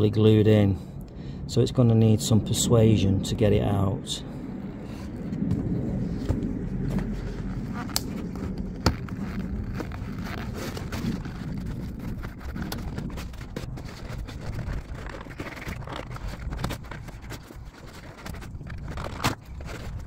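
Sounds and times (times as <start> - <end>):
low outdoor rumble: 0.0 - 20.0
scraping: 4.9 - 20.0
plastic panel clicking and creaking: 7.8 - 20.0.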